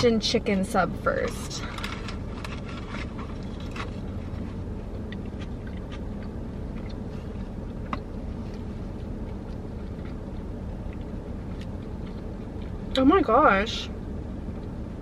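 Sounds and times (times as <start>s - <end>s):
low car cabin hum: 0.0s - 15.0s
wet chewing clicks: 3.3s - 13.0s.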